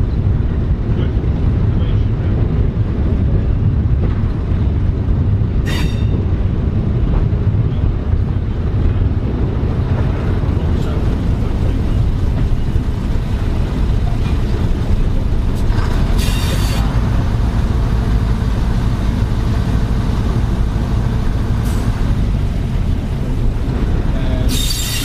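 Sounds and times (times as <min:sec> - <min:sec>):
train engine rumble: 0:00.0 - 0:25.0
short high hiss: 0:24.5 - 0:25.0.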